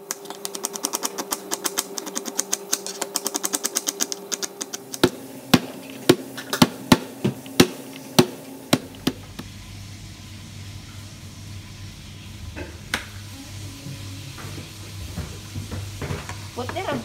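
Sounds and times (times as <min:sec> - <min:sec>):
knife chopping on plastic board: 0:00.2 - 0:09.4.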